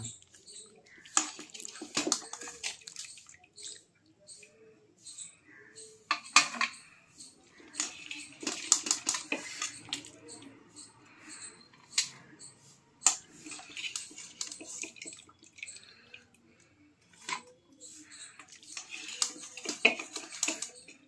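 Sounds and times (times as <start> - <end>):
broth splashing and dripping: 0.8 - 4.0, 13.0 - 16.6.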